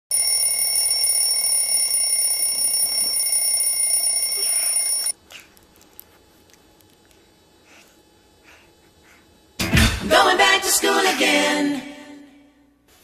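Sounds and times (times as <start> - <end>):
alarm clock high-pitched tone: 0.1 - 5.2.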